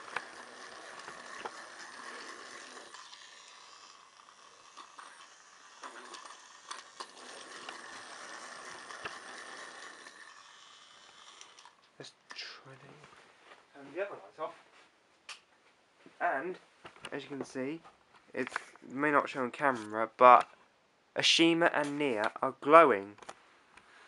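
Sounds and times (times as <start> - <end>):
toy train motor whirring: 0.0 - 12.6.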